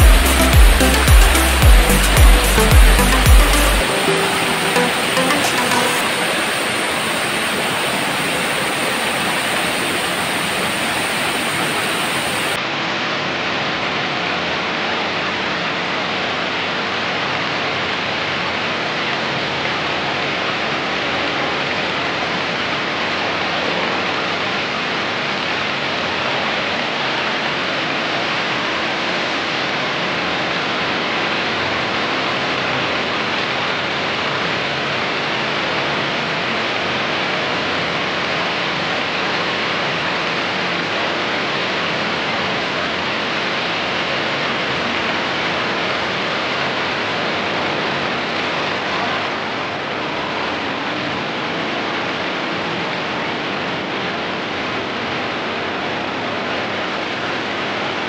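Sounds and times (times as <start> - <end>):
waterfall splashing over rocks: 0.0 - 12.6.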